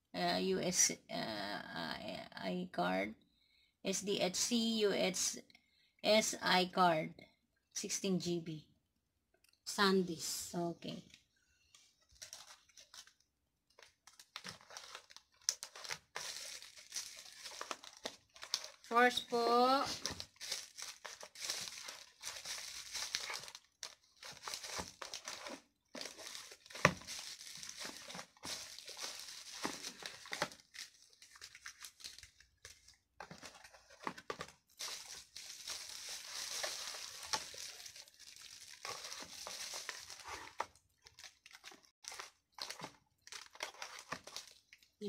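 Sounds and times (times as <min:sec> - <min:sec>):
plastic packaging crinkling: 0:12.0 - 0:44.9.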